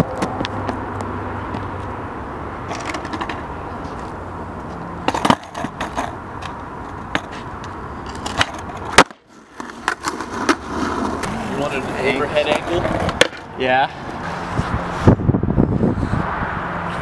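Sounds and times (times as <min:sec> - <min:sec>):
skateboard clicks and knocks: 0:00.0 - 0:01.9, 0:02.6 - 0:13.5.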